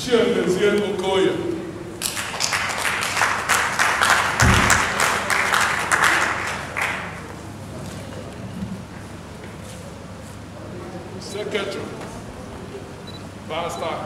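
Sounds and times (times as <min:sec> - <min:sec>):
audience applauding: 0:02.0 - 0:07.3
low thump: 0:04.4 - 0:05.0.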